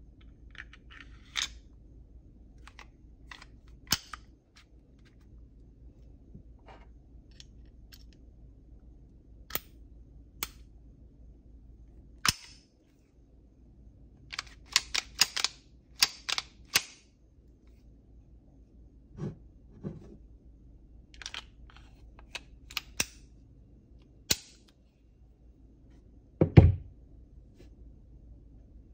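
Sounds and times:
pistol metallic clicks and clacks: 0:12.3 - 0:12.6, 0:14.4 - 0:17.0.

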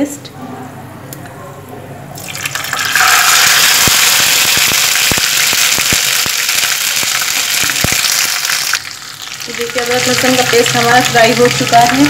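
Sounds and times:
paste sizzling in hot fat: 0:02.2 - 0:12.0
crackling pops of spitting fat: 0:03.7 - 0:09.0.

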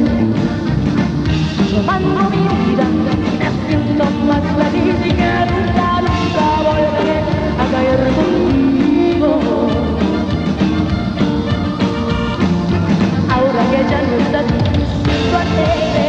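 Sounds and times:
band playing steady beat: 0:00.0 - 0:16.0
woman singing into microphone: 0:01.6 - 0:10.3, 0:13.3 - 0:16.0.

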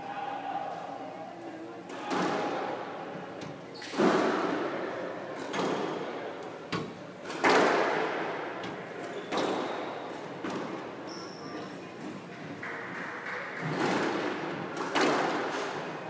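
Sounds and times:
squash ball hits echoing: 0:01.9 - 0:02.8, 0:07.3 - 0:08.4, 0:13.6 - 0:15.9.

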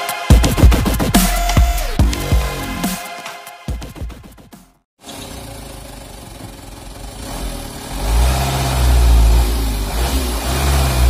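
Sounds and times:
diesel truck engine revving: 0:05.0 - 0:11.0.

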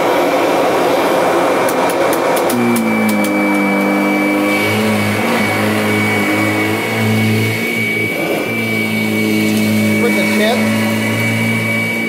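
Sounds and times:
vacuum cleaner running on carpet: 0:00.0 - 0:12.0.

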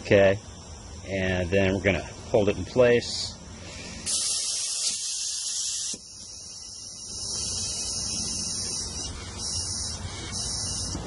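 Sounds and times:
compressed air hissing: 0:03.5 - 0:11.0.

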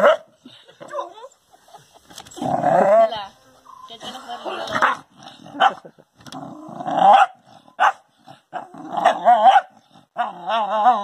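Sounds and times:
dog barking: 0:00.0 - 0:00.3, 0:07.1 - 0:08.0, 0:09.0 - 0:09.7
dog growling: 0:02.4 - 0:03.2, 0:04.4 - 0:11.0.

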